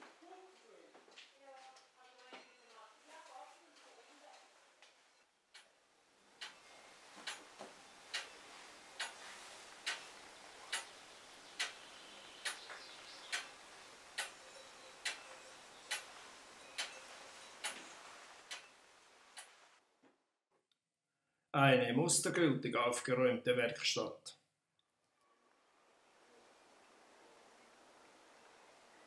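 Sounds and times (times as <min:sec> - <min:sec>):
mechanical clock ticking: 0:07.2 - 0:07.4, 0:08.1 - 0:08.3, 0:09.0 - 0:09.2, 0:10.7 - 0:10.9, 0:11.6 - 0:11.8, 0:13.3 - 0:13.5, 0:14.2 - 0:16.1, 0:16.8 - 0:17.0, 0:17.6 - 0:17.8, 0:18.5 - 0:18.7.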